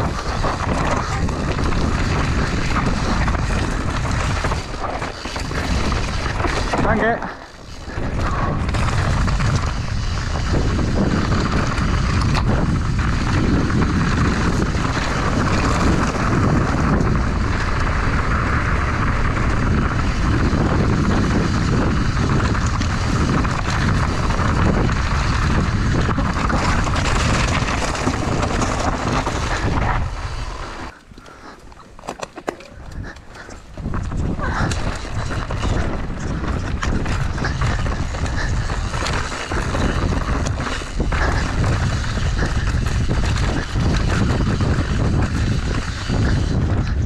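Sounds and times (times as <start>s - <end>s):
tyres rolling over stones: 0.0s - 19.3s, 19.9s - 47.0s
wind rushing over microphone: 0.0s - 47.0s
bike clattering and knocking: 30.9s - 47.0s.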